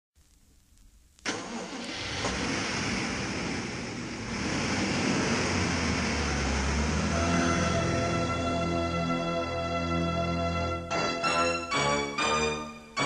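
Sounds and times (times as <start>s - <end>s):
faint crackle: 0.2s - 1.4s.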